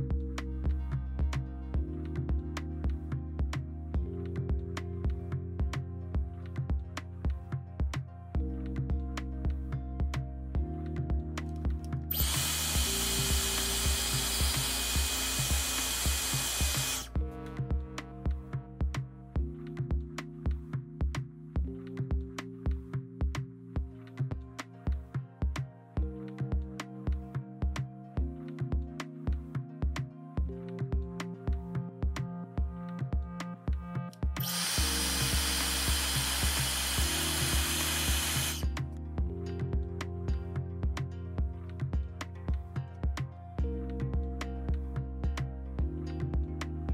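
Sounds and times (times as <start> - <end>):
background music with steady beat: 0.0 - 46.9
hairdryer blowing: 12.1 - 17.1, 34.4 - 38.6.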